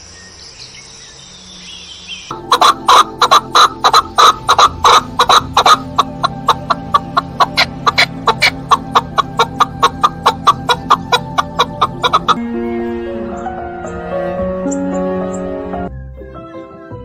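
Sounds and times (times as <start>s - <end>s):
partridge clucking calls: 2.3s - 12.4s.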